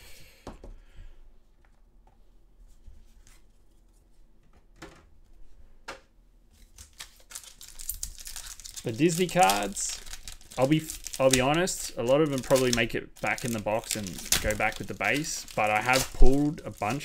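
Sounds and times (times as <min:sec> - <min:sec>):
trading cards clicking and rustling: 0:06.6 - 0:17.0.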